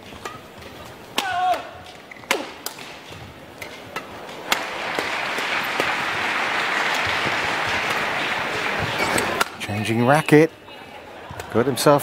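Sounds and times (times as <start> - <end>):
rackets hitting shuttlecock: 0.2 - 6.1, 6.8 - 9.6
crowd applause: 4.4 - 9.4
sneaker squeaking on court: 8.8 - 9.4.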